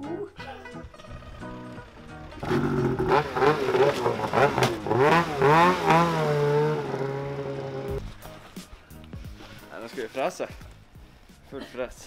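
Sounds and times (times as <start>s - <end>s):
snowmobile engine revving: 1.0s - 8.0s.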